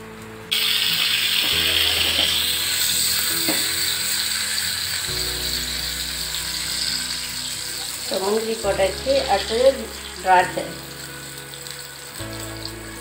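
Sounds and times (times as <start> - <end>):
nuts sizzling in hot fat: 0.5 - 13.0.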